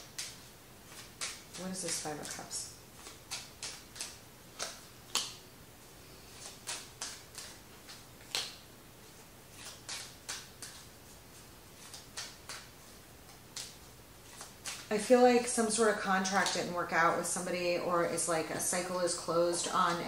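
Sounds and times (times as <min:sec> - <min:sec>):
cards clicking and tapping on table: 0:00.0 - 0:02.4, 0:09.6 - 0:10.9, 0:13.3 - 0:14.9.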